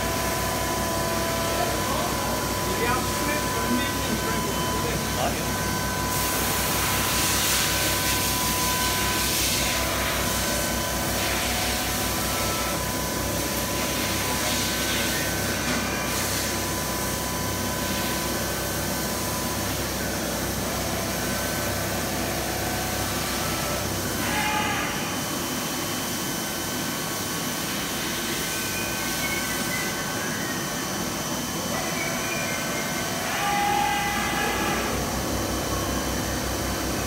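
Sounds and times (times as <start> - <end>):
low machine hum: 0.0 - 37.0
machine spindle whine: 0.0 - 37.0
higher machine tone: 22.9 - 37.0.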